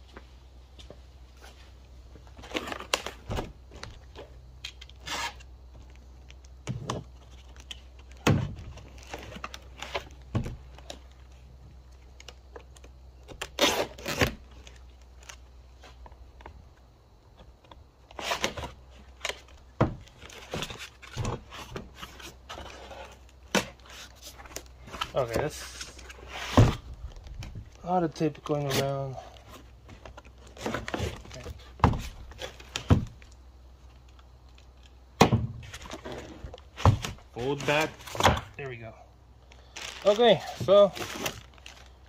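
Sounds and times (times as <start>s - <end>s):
packing tape cut and torn: 4.6s - 5.5s, 12.2s - 15.4s, 18.1s - 22.3s, 39.6s - 42.0s.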